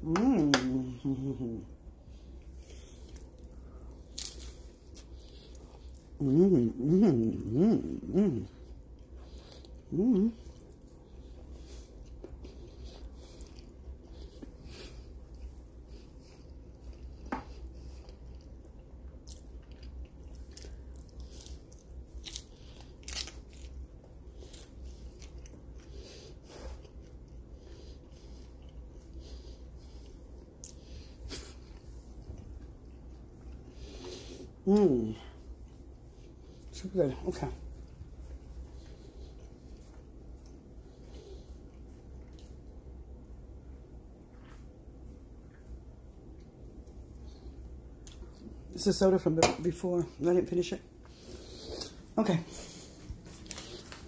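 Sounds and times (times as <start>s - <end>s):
low steady hum: 0.0s - 54.0s
person chewing crunchy food: 2.2s - 36.7s.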